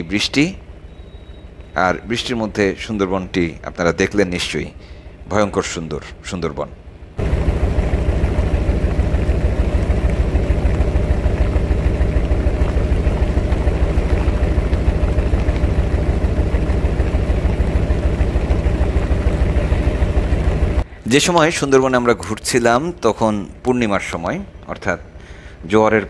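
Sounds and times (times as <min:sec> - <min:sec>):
boat engine thudding: 0:07.2 - 0:20.9
engine hiss: 0:07.2 - 0:21.0.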